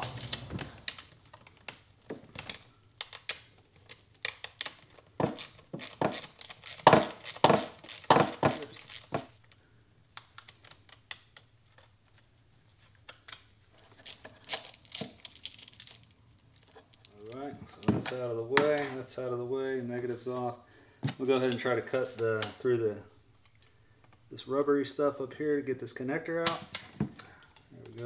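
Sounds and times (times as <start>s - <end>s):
hand tool and cable lugs clicking: 0.0s - 1.8s, 2.4s - 9.3s.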